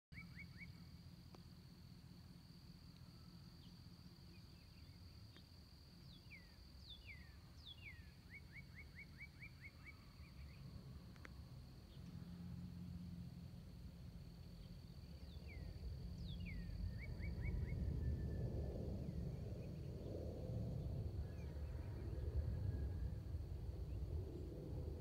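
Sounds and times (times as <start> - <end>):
songbird singing: 0.1 - 24.6
low rumble: 10.5 - 25.0.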